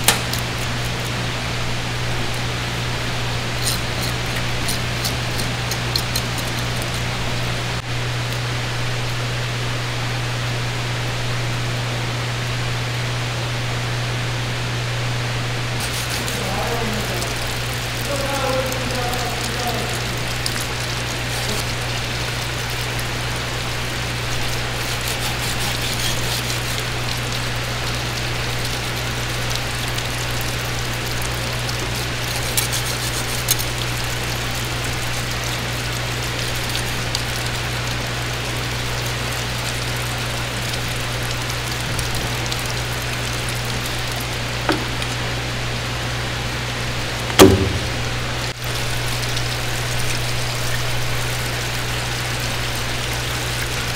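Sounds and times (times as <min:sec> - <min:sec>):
running water rushing: 0:00.0 - 0:12.5, 0:15.6 - 0:53.9
low machine hum: 0:00.0 - 0:53.9
sharp knock: 0:47.4 - 0:48.1.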